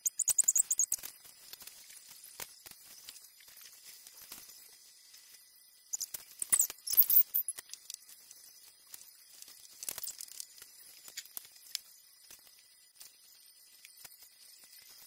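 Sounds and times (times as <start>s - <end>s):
plastic crinkling: 7.5s - 13.2s.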